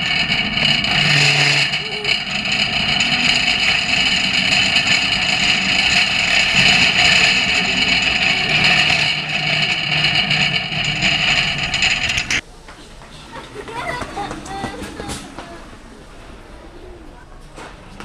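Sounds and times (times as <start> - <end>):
shopping cart wheels rolling: 0.0 - 12.4, 13.2 - 18.0
wire basket rattling: 0.0 - 12.4.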